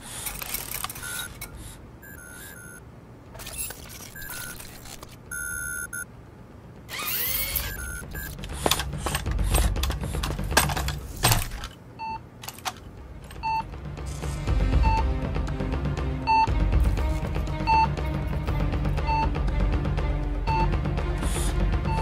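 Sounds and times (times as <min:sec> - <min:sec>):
short electronic beeps: 0:02.0 - 0:02.8, 0:05.3 - 0:06.1, 0:07.5 - 0:08.4
metallic clicks and clanks: 0:08.4 - 0:11.8, 0:12.4 - 0:13.6.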